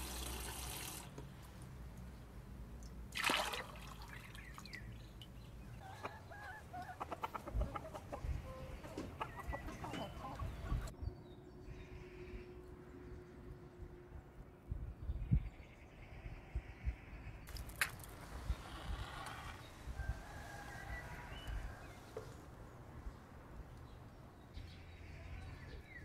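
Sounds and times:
water splash: 3.1 - 4.8
hen clucking: 5.8 - 10.9.

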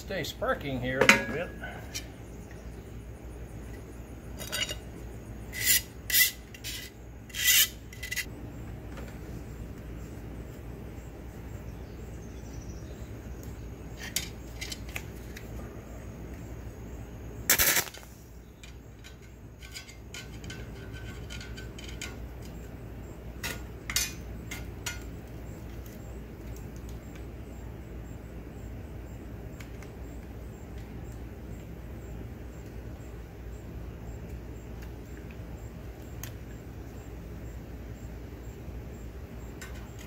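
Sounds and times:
steady low hum: 0.0 - 40.0
metal rod clinking and scraping: 1.0 - 2.1, 4.4 - 4.9, 5.5 - 8.3, 19.0 - 22.2.

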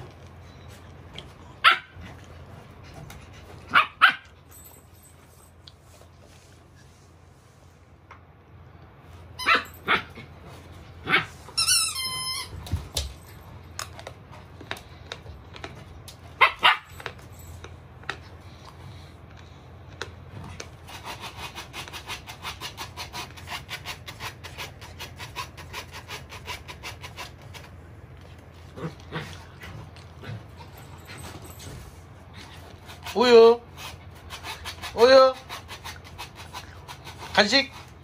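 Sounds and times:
puppy barking: 1.6 - 2.0, 3.7 - 4.3, 9.4 - 10.2, 11.0 - 11.4, 16.4 - 17.0.

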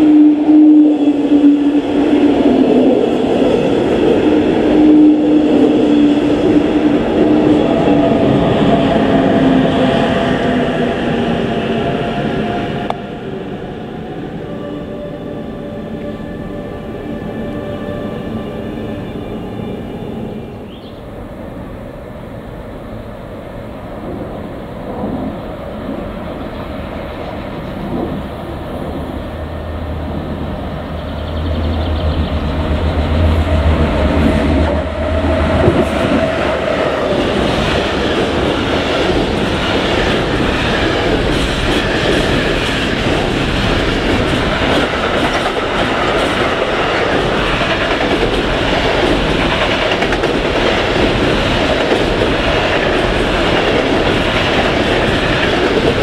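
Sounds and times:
clickety-clack of wheels: 37.5 - 56.0.

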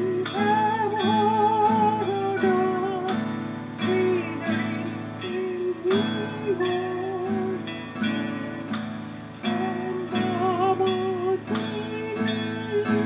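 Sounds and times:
guitar music: 0.0 - 13.0.

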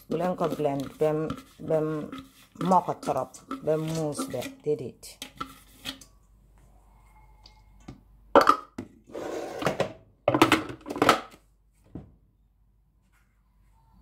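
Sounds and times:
plastic bowl knocking and clattering: 8.4 - 9.0, 9.6 - 11.4.

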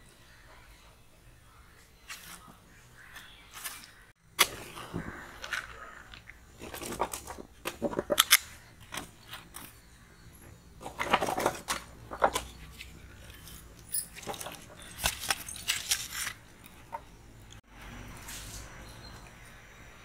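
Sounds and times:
firewood knocking and scraping: 4.4 - 9.7, 10.4 - 17.2.

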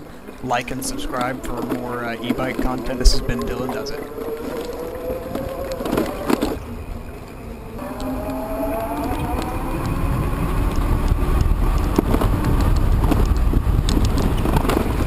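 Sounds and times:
wind rumble on microphone: 0.0 - 15.0
electric motor whining: 7.7 - 13.4.

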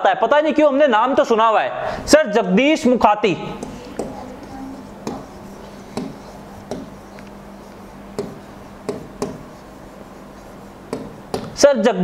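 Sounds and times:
marker tapping on a whiteboard: 3.6 - 11.6.

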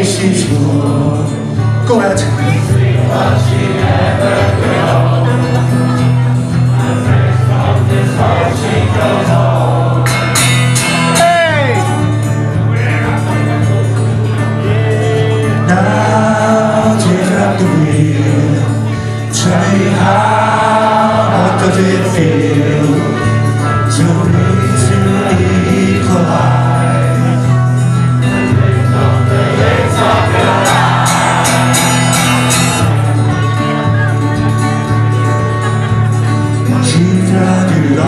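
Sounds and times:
voices singing along: 0.0 - 34.3, 35.8 - 38.0
strummed acoustic guitar: 0.0 - 38.0
bass line: 23.4 - 38.0.

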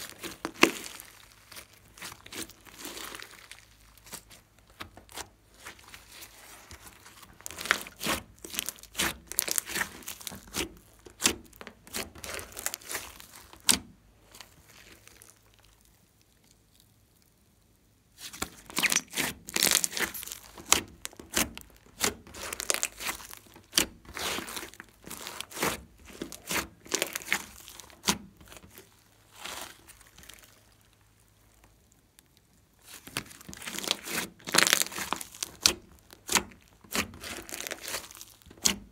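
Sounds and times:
sticky slime clicking and crackling: 0.0 - 17.4, 18.2 - 38.9.

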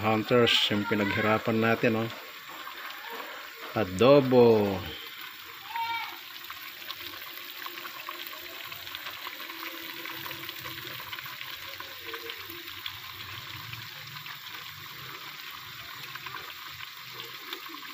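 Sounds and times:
food sizzling in a pot: 0.0 - 17.9.

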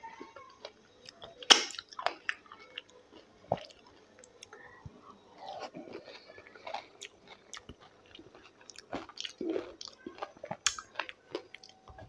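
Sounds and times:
chewing and wet mouth smacks: 5.4 - 11.8.

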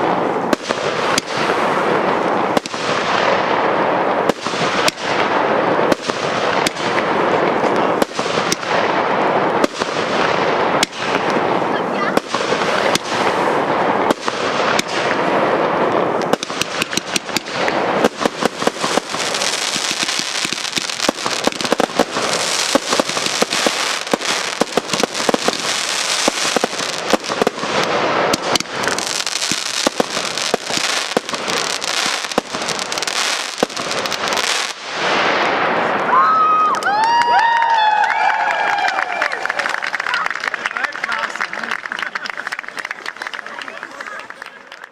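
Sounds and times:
fireworks hiss: 0.0 - 35.9
fireworks crackling and popping: 0.0 - 44.9.

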